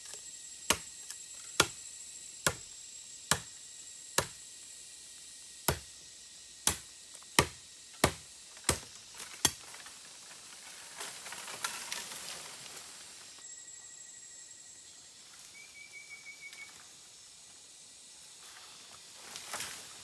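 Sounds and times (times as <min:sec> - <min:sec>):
machete chopping bamboo: 0:00.1 - 0:01.8, 0:02.4 - 0:04.5, 0:05.6 - 0:06.0, 0:06.6 - 0:09.8
bamboo leaves rustling and crackling: 0:06.7 - 0:13.4, 0:18.2 - 0:20.0.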